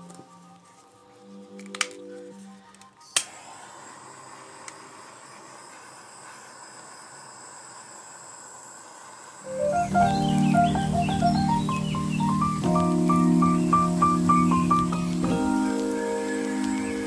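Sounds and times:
torch flame hissing: 11.5s - 17.0s
butane torch clicking alight: 13.6s - 17.0s.

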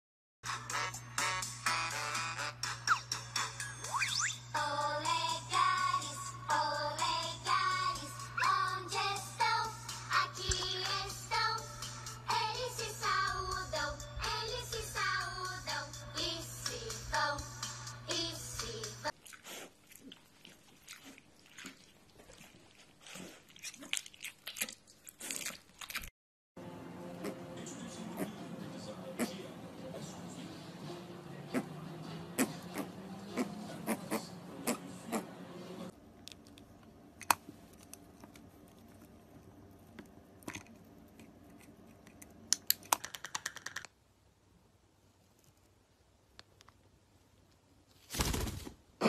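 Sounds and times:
bird beak clicking on plastic toy: 42.6s - 43.9s.

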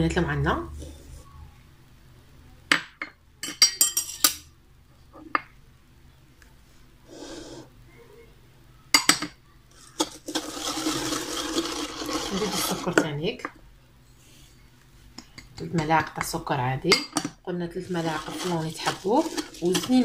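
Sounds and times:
glass bowls and spoon clinking: 3.4s - 4.4s, 16.9s - 20.0s.

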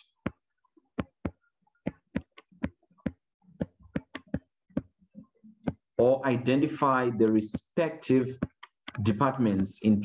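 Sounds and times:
stylus clicking on tablet: 0.1s - 5.0s.

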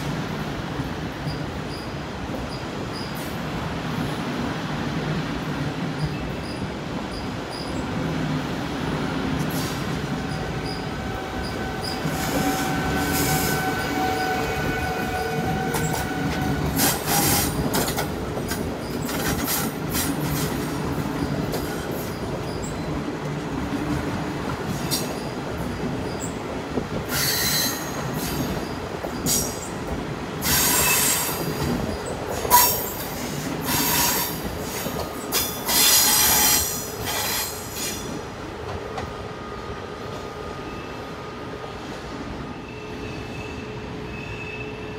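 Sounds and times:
train wheels rumbling over rails: 0.0s - 44.1s
train wheels squealing: 1.2s - 3.4s, 6.0s - 7.9s, 9.4s - 17.9s, 18.8s - 20.5s, 21.2s - 23.0s, 24.7s - 26.4s, 27.0s - 29.8s, 30.4s - 38.2s, 40.2s - 41.2s, 42.4s - 44.9s.

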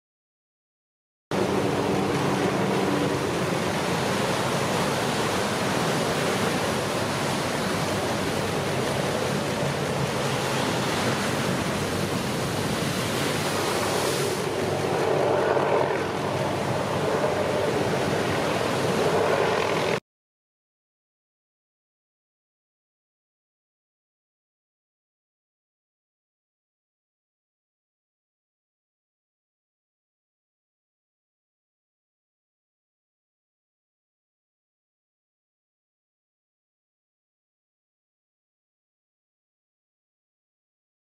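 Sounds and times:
ocean waves breaking: 1.4s - 20.0s.

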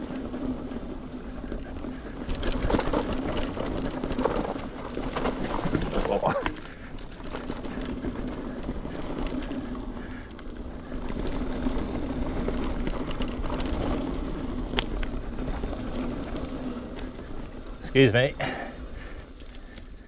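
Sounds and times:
bike clicking and rattling: 0.0s - 20.0s
bike tyres rolling on trail: 0.0s - 20.0s.

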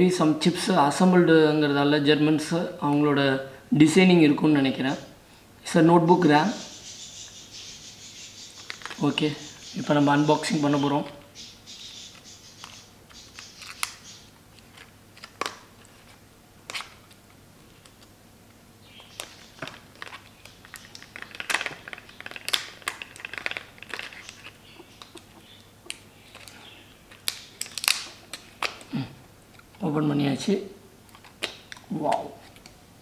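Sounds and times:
plastic packaging clicking and crinkling: 8.6s - 9.2s, 12.1s - 18.1s, 19.0s - 28.9s, 31.1s - 32.8s.

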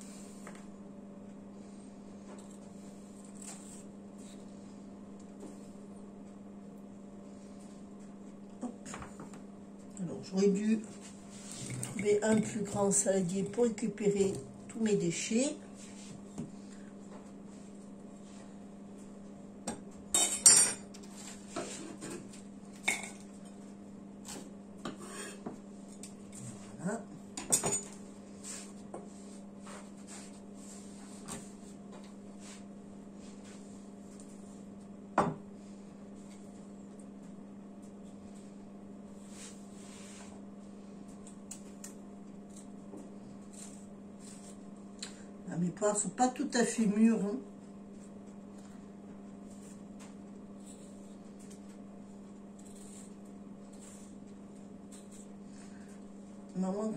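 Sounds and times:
steady low hum: 0.0s - 56.9s.

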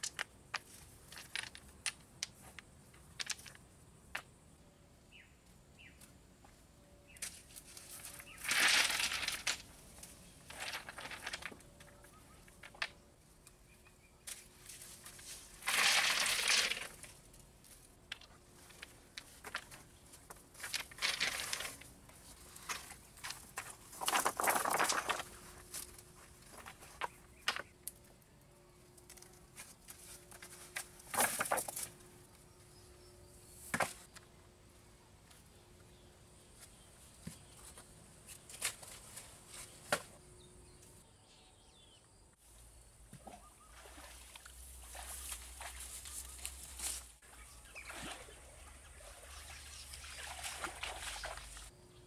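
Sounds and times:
stones scraping and clacking: 0.0s - 4.3s, 10.5s - 13.0s, 15.2s - 17.2s, 18.1s - 21.9s, 22.5s - 28.0s.

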